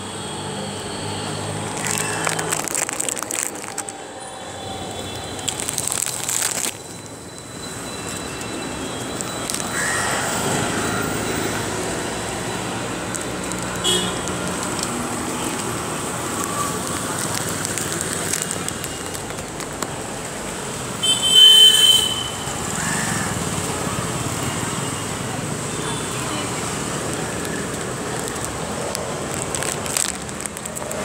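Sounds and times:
street traffic noise: 0.0s - 31.0s
vehicle horn: 13.8s - 14.3s, 21.0s - 22.4s.

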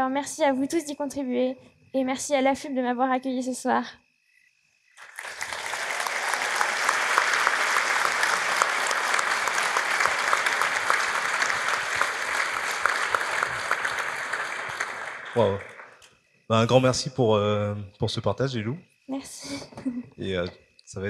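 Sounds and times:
audience applauding: 5.0s - 16.8s.

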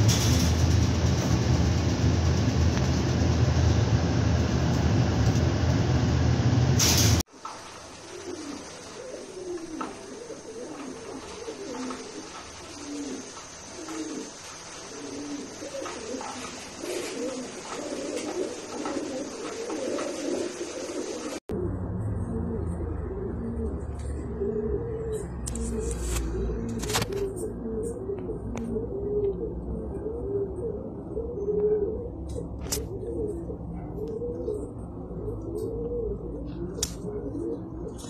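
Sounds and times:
loud low rumble: 0.0s - 7.2s
pigeon cooing: 8.0s - 38.0s.

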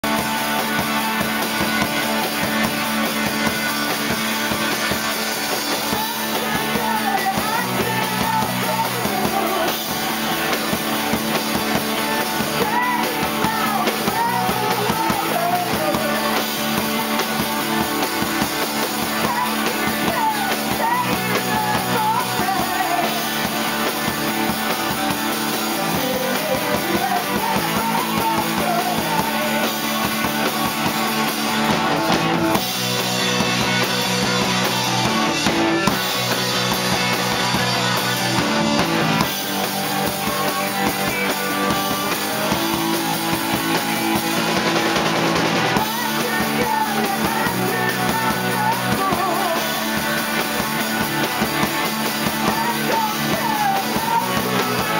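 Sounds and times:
bass line: 0.0s - 54.9s
drum kit: 0.0s - 54.9s
electric guitar: 0.0s - 54.9s
person singing: 5.6s - 30.5s, 45.5s - 54.9s.

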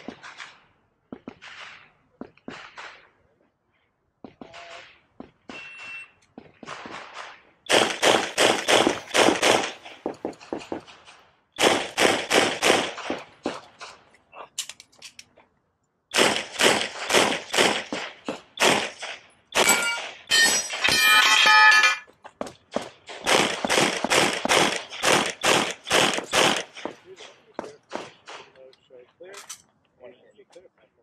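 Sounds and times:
pistol shots with echo: 4.3s - 14.0s, 16.1s - 21.0s, 22.7s - 28.6s
steel targets ringing: 19.6s - 22.1s.

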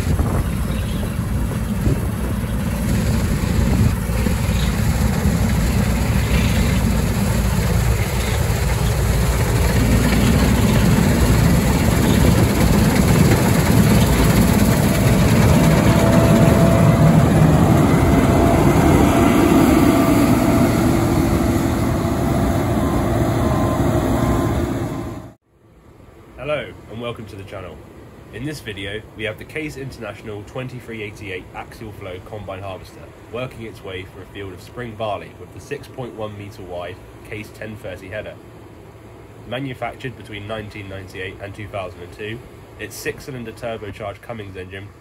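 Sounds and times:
combine harvester engine running: 0.0s - 25.4s
threshing machinery: 1.2s - 25.3s.

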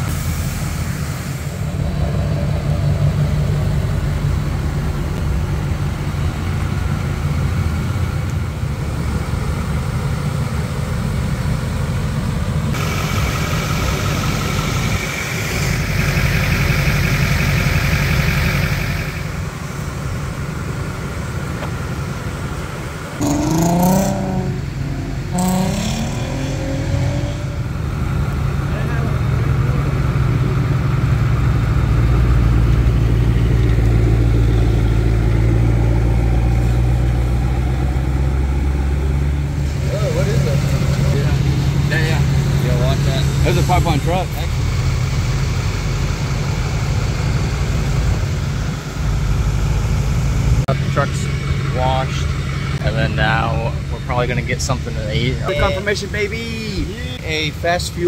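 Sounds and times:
truck engine running: 0.0s - 58.0s.

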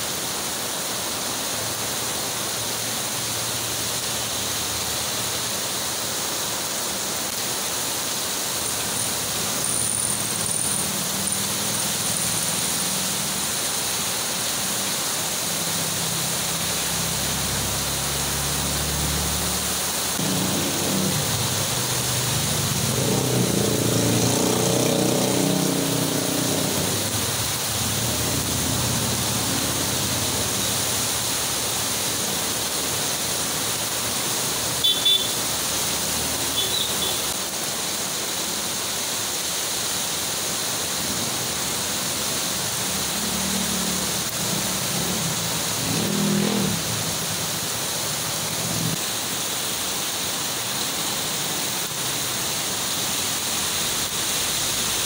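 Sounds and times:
heavy rain on street: 0.0s - 55.0s
motorcycles splashing past: 8.7s - 14.2s, 15.3s - 37.3s, 40.5s - 49.0s.

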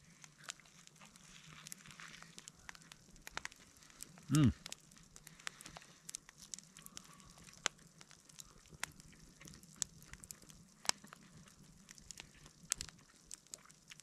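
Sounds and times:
wood fire crackling: 0.0s - 14.0s.

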